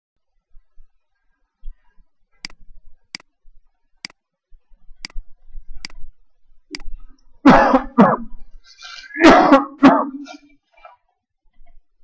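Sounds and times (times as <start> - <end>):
person coughing: 7.5 - 8.3, 8.9 - 10.4.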